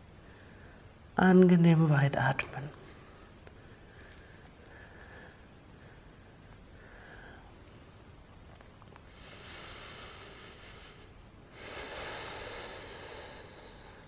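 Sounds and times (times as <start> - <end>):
person breathing deeply: 3.0 - 7.6, 9.1 - 14.0.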